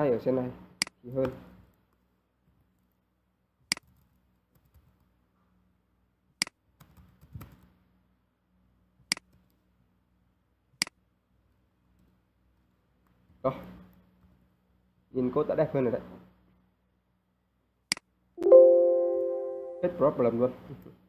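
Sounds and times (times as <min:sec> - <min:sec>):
mouse and keyboard clicks: 0:03.6 - 0:05.1, 0:09.0 - 0:09.6.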